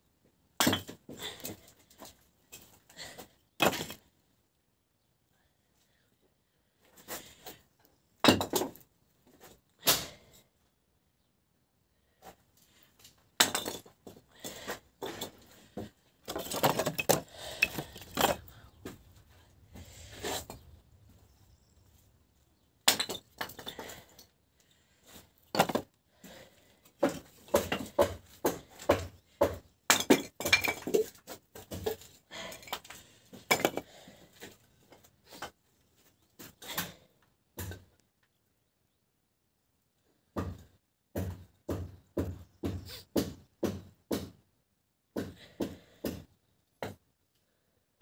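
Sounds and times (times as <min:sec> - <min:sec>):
wood pieces knocking and clattering: 0:00.6 - 0:04.0, 0:08.2 - 0:08.8, 0:13.0 - 0:19.2, 0:22.8 - 0:24.3, 0:25.4 - 0:26.4, 0:27.0 - 0:35.5.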